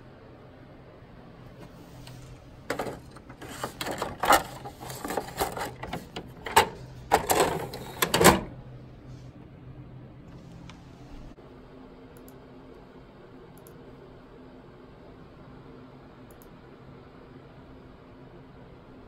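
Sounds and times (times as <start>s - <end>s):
faint steady hum: 0.0s - 19.0s
paper rustling: 1.6s - 8.4s
paper knocking in printer tray: 2.6s - 8.5s.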